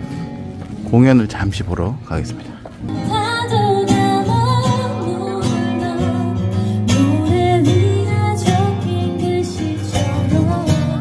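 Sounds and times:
strummed acoustic guitar: 0:00.0 - 0:01.1, 0:02.4 - 0:11.0
woman singing: 0:02.8 - 0:11.0.

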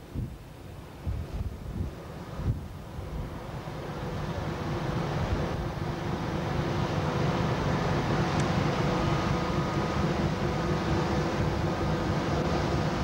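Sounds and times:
ferry engine rumble: 0:02.0 - 0:13.0.

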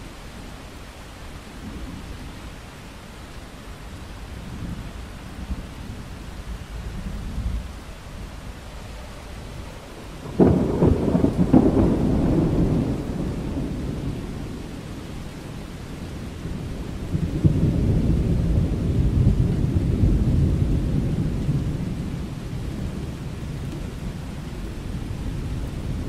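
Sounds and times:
steady rain: 0:00.0 - 0:26.0
thunder crack: 0:10.2 - 0:14.0
deep thunder rumble: 0:10.2 - 0:15.1, 0:16.4 - 0:26.0.

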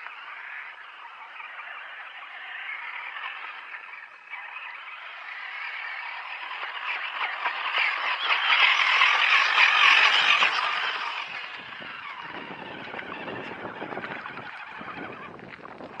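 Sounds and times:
toy truck motor: 0:04.4 - 0:15.4.

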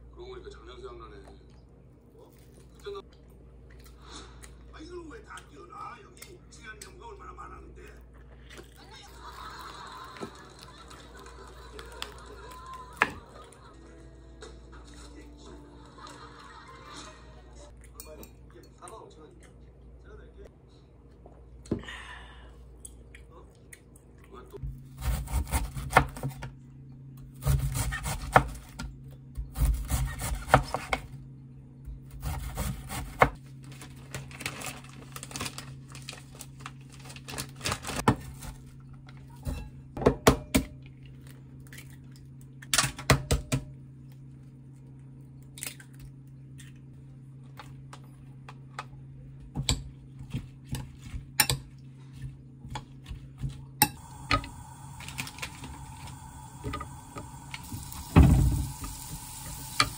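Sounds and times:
knife chopping on wooden board: 0:29.5 - 0:31.0.

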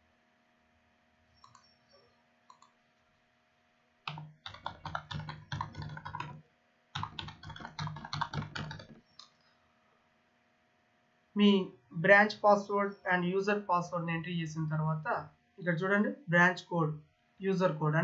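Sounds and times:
faint clicks: 0:01.4 - 0:01.8, 0:02.5 - 0:02.8, 0:07.0 - 0:09.5
keyboard typing: 0:01.4 - 0:01.8, 0:02.5 - 0:02.8, 0:04.1 - 0:09.4.

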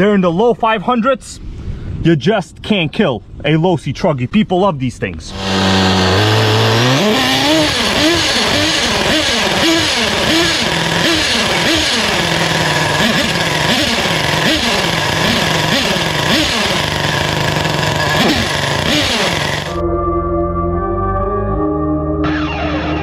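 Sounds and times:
nitro engine revving: 0:05.3 - 0:19.8.

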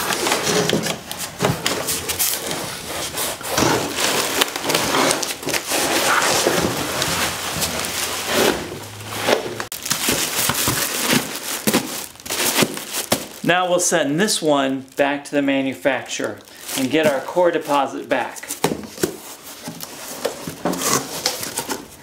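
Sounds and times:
packing material rustling and crinkling: 0:00.0 - 0:22.0.

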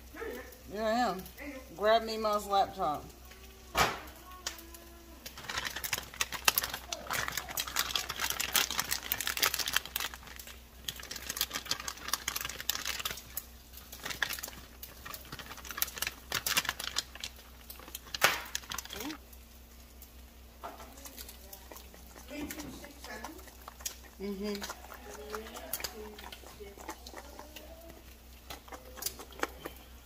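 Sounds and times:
plastic bag crinkling: 0:04.0 - 0:20.2
wooden spoon stirring thick mixture: 0:05.2 - 0:19.2, 0:20.6 - 0:30.0.

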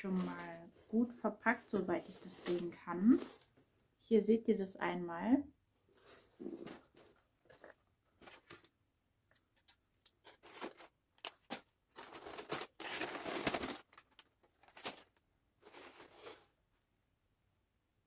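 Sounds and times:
packing material rustling and tearing: 0:09.6 - 0:16.5.

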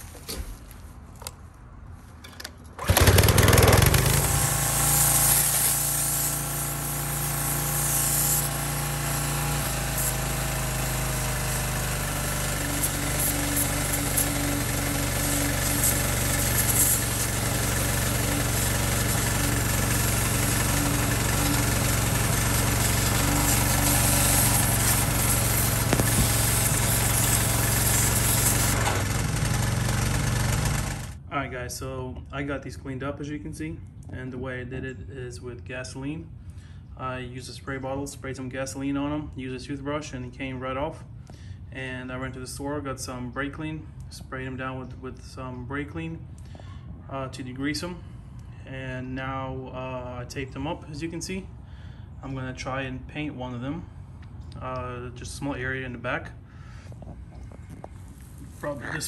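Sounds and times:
pressure washer engine running: 0:02.8 - 0:31.2
water jet hissing: 0:04.3 - 0:10.2, 0:12.7 - 0:28.8.

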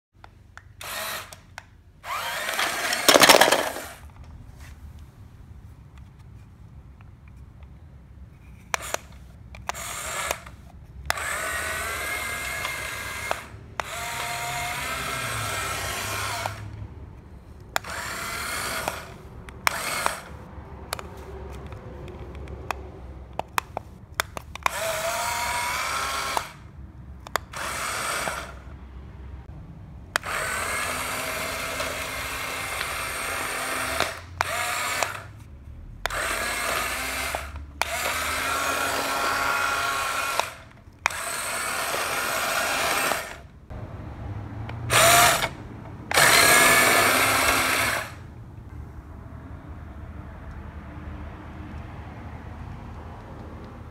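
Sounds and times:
toy car electric motor whining: 0:00.8 - 0:04.2, 0:08.4 - 0:16.8, 0:17.4 - 0:22.6, 0:23.4 - 0:28.7, 0:30.2 - 0:35.4, 0:36.0 - 0:43.5, 0:44.8 - 0:48.3
sharp clicks: 0:08.6 - 0:15.1, 0:17.6 - 0:26.6, 0:27.2 - 0:28.6, 0:36.0 - 0:43.4.

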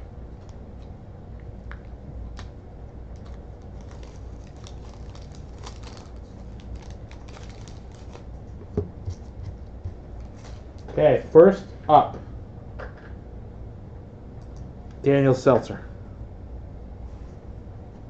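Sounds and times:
wax paper crinkling and tearing: 0:03.1 - 0:08.4.

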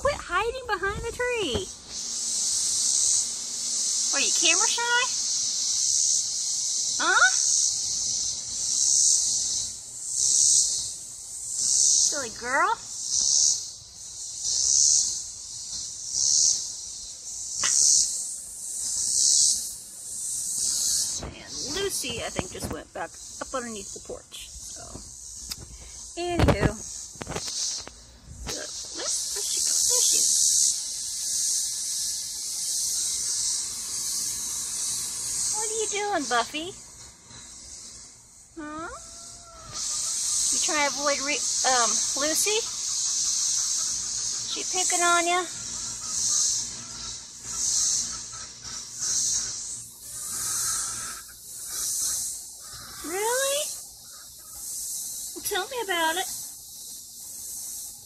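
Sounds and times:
insects chirring: 0:00.0 - 0:58.0.

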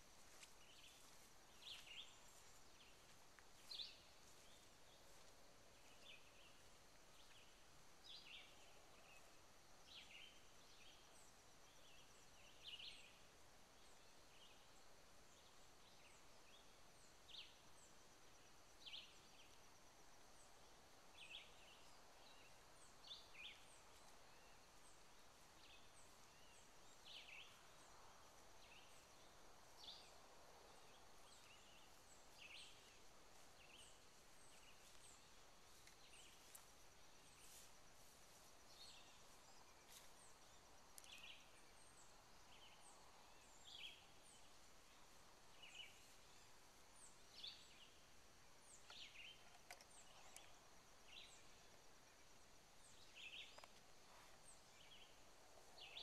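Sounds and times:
birds chirping: 0:00.0 - 0:13.2
faint high-pitched hum: 0:00.0 - 0:56.0.

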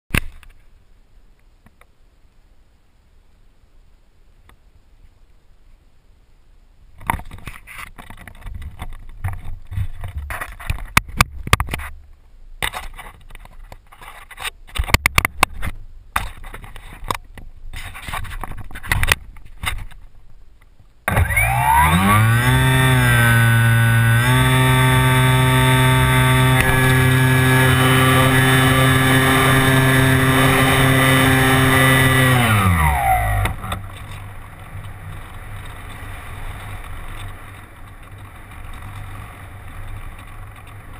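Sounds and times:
electric motor and propeller whine: 0:21.1 - 0:40.9.

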